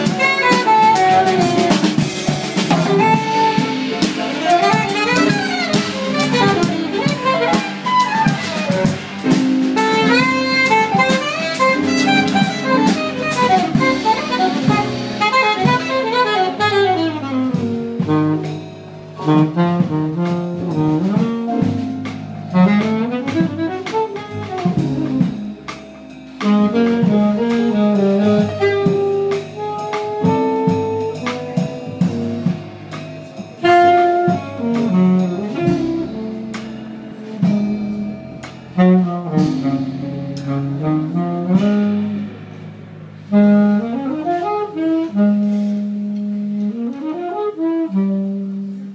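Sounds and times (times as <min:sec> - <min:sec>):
drum kit: 0:00.0 - 0:48.9
low bass notes: 0:00.0 - 0:48.9
saxophone fast runs: 0:02.6 - 0:09.0.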